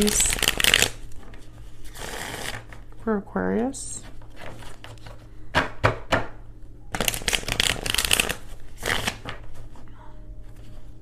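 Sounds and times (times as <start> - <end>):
cards fluttering in shuffle: 0.0 - 3.0, 7.0 - 9.8.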